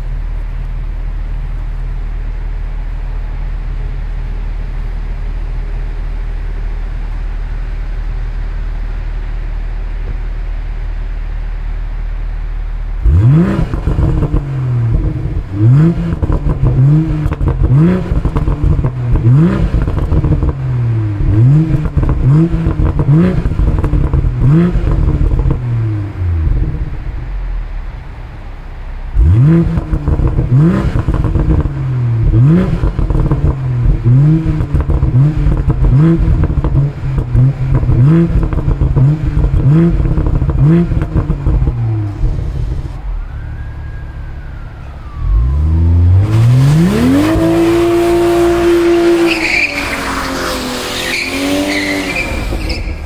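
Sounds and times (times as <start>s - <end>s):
exhaust crackles and burbles: 0.0s - 51.0s
car engine idling: 0.0s - 53.0s
car engine revving in blips: 13.0s - 27.4s, 29.0s - 53.0s.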